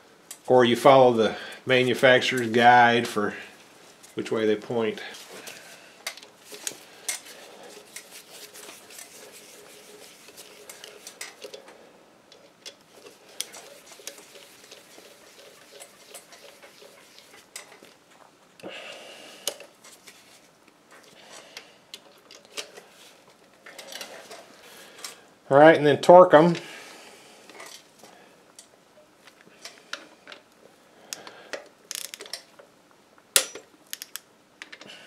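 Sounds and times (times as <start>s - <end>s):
metal tool scrape: 6.5s - 11.6s
wrench clicking on bolts: 31.9s - 32.5s, 33.4s - 34.2s.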